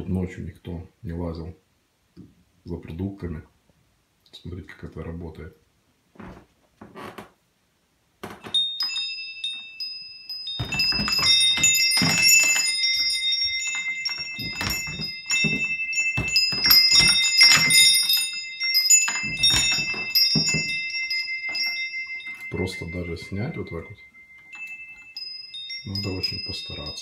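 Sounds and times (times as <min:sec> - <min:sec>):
chime tubes knocking: 0:08.3 - 0:27.0
metal wind chime ringing: 0:08.5 - 0:27.0.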